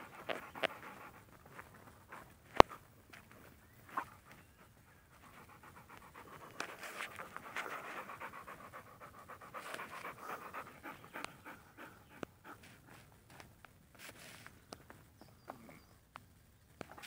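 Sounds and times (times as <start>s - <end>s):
dog panting: 0.0s - 2.8s, 4.0s - 13.5s.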